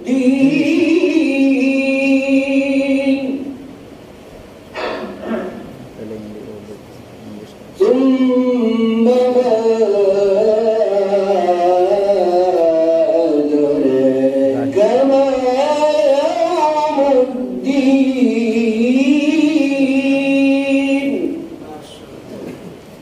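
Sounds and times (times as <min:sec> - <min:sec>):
man chanting melodically: 0:07.5 - 0:22.0.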